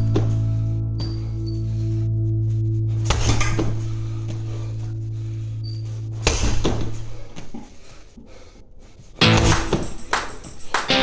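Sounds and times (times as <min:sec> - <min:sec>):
low sustained music chord: 0:00.0 - 0:07.3
sharp hits: 0:09.2 - 0:11.0.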